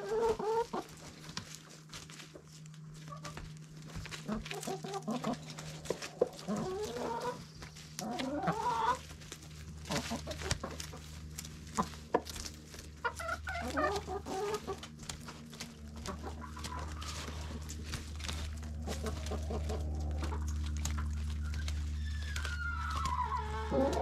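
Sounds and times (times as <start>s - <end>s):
chickens clucking: 0.0s - 24.0s
steady low hum: 0.0s - 24.0s.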